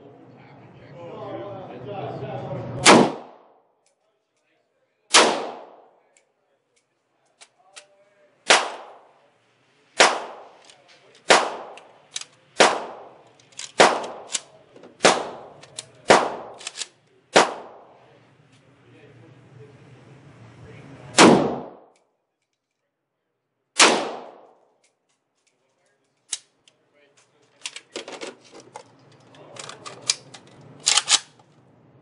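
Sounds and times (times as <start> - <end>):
rifle shots with ringing echo: 2.8 - 3.6, 5.1 - 6.0, 8.5 - 9.2, 10.0 - 10.6, 11.2 - 18.0, 21.2 - 21.9, 23.8 - 24.6.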